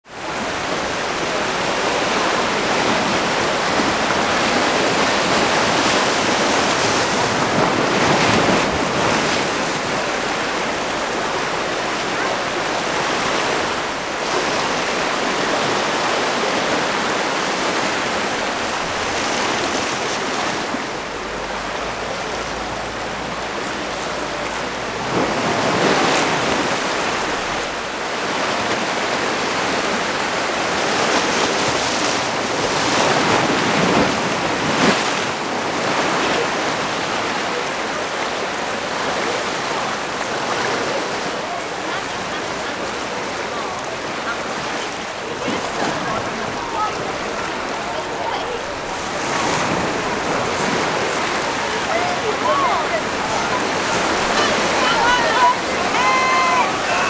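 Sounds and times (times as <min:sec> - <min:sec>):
open sea: 0:00.0 - 0:57.0
wind: 0:00.0 - 0:57.0.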